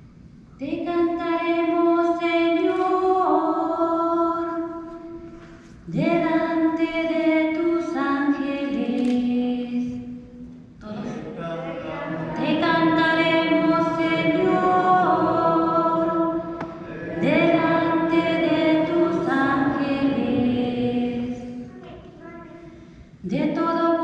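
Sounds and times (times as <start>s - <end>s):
woman singing unaccompanied: 0.6s - 4.8s, 5.9s - 10.2s, 12.3s - 16.6s, 17.2s - 21.7s, 23.2s - 24.0s.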